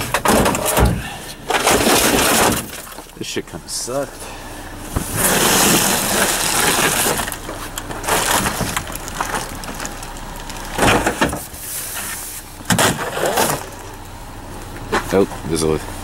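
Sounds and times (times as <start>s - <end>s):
plastic and metal items clattering: 0.0s - 3.2s, 5.0s - 14.0s.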